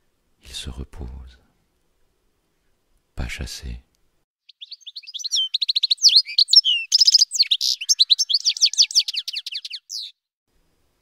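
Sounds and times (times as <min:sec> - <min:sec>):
songbird singing with trills: 0:04.4 - 0:10.3.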